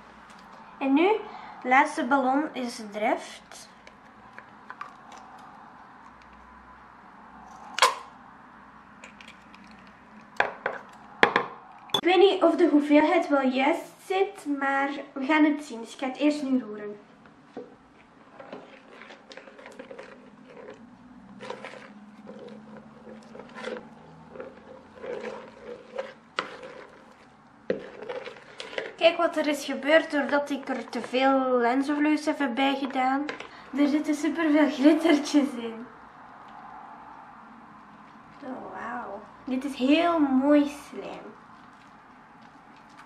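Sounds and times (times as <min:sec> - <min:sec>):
scoop stirring wet slime: 0:18.0 - 0:31.3.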